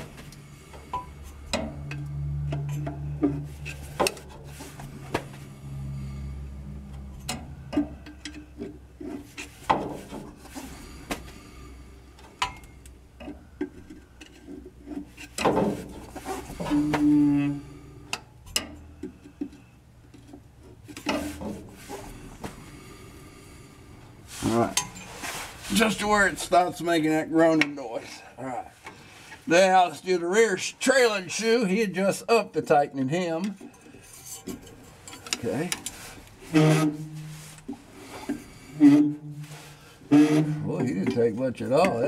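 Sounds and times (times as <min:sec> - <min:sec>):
brake shoes groaning on drum: 0:00.0 - 0:18.2, 0:34.4 - 0:42.0.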